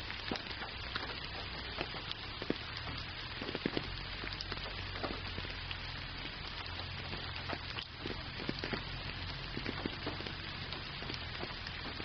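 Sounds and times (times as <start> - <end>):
raindrops ticking: 0.0 - 12.0
steady rainfall hiss: 0.0 - 12.0.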